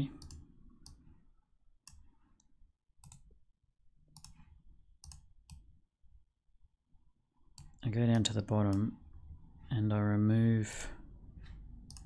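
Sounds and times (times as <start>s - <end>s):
computer mouse clicks: 0.1s - 1.1s, 1.8s - 3.3s, 4.1s - 5.7s, 7.6s - 8.9s.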